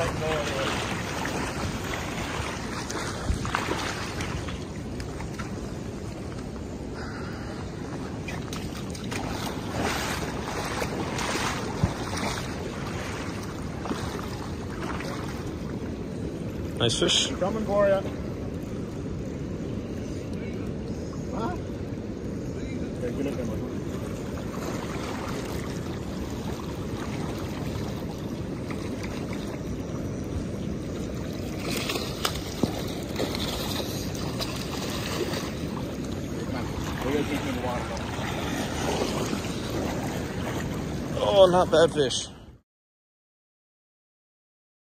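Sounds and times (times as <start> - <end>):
water splashing: 0.0 - 22.1, 22.8 - 42.3
wind buffeting microphone: 0.0 - 42.3
rushing river water: 0.0 - 42.4.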